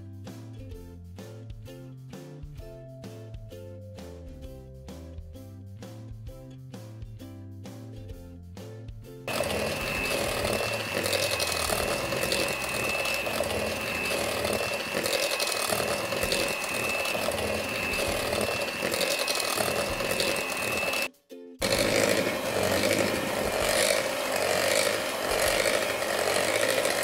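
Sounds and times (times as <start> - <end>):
electric hand mixer running: 9.3 - 27.0.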